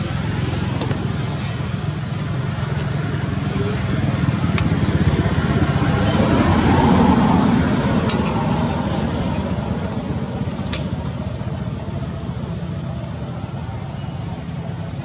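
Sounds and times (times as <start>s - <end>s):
low motor rumble: 0.0s - 15.0s.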